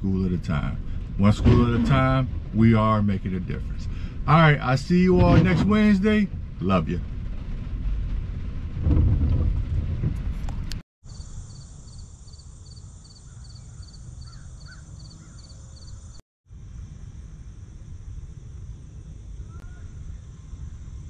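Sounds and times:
low rumble: 0:00.0 - 0:10.8, 0:16.5 - 0:21.0
high insect chorus: 0:11.0 - 0:21.0
pulsing insect chirp: 0:11.1 - 0:21.0
faint bird calls: 0:12.7 - 0:16.0.

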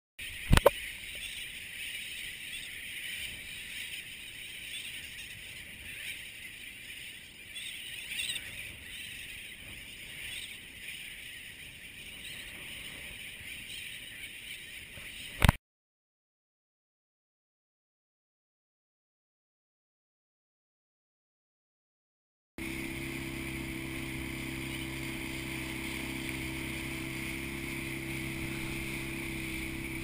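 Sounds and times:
seabird colony calling: 0:00.2 - 0:15.6, 0:22.6 - 0:30.0
sharp click: 0:00.5 - 0:00.8.

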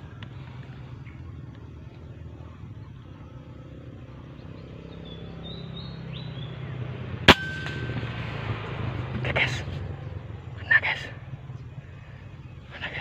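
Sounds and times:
small birds chirping: 0:00.0 - 0:07.2, 0:08.7 - 0:13.0
steady low hum: 0:07.0 - 0:13.0
thin ringing tone: 0:07.3 - 0:08.8.

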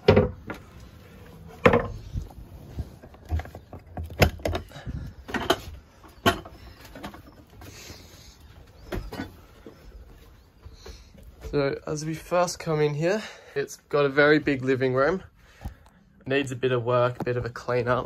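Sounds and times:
wooden knocks and clatters: 0:00.0 - 0:00.8, 0:01.5 - 0:02.4, 0:03.0 - 0:07.8.

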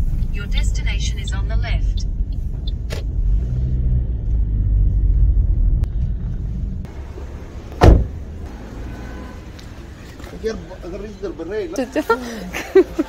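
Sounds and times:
car cabin rumble: 0:00.0 - 0:08.5
loud thump: 0:07.7 - 0:08.3.

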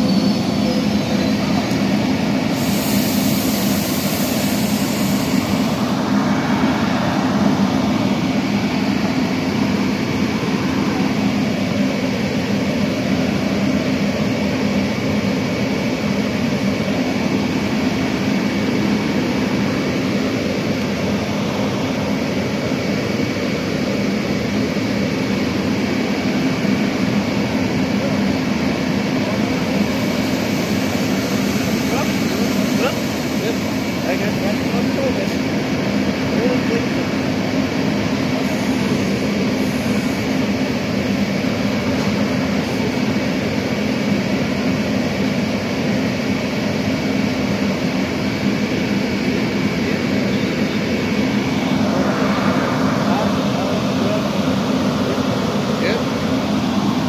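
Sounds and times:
thin high whine: 0:00.0 - 0:45.7, 0:47.4 - 0:57.0
train rumbling on rails: 0:00.0 - 0:57.0
brief hiss: 0:02.6 - 0:05.7.

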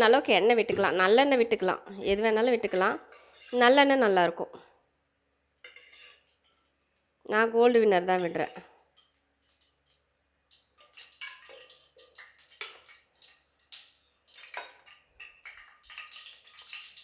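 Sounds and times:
oil crackling in a pan: 0:05.4 - 0:17.0.

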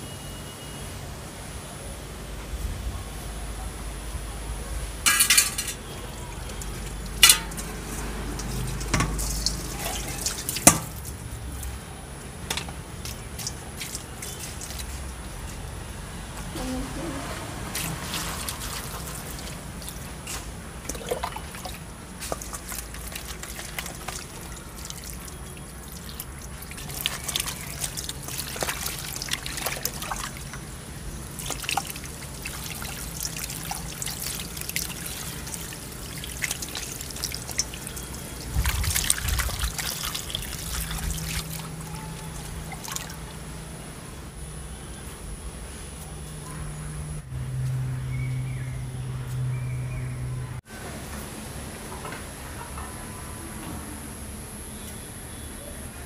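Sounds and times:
water trickling and splashing: 0:05.0 - 0:43.8.

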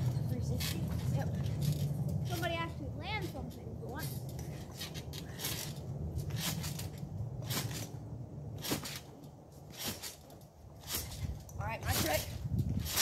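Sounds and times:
low steady rumble: 0:00.0 - 0:13.0
scooter landing on trampoline: 0:04.7 - 0:09.1, 0:09.7 - 0:13.0.

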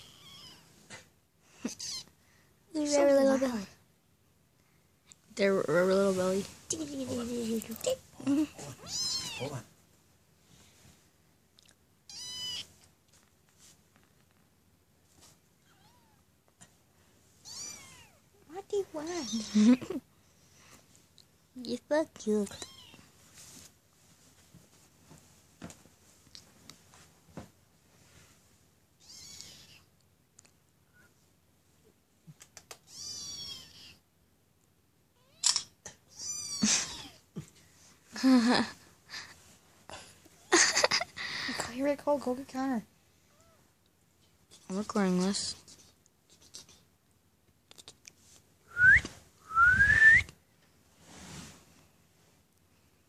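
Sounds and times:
kitten meowing: 0:00.0 - 0:00.6, 0:01.7 - 0:02.1, 0:08.8 - 0:09.6, 0:12.1 - 0:12.7, 0:17.4 - 0:18.2, 0:32.9 - 0:34.0
light taps and rustles: 0:23.3 - 0:27.6.

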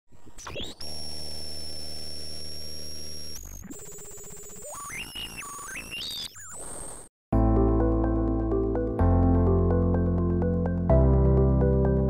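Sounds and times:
low electronic buzz: 0:00.7 - 0:04.6.

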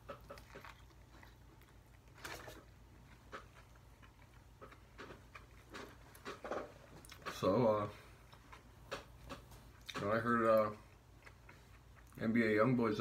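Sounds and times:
low steady hum: 0:00.0 - 0:13.0
chewing mouth clicks: 0:10.9 - 0:12.2.

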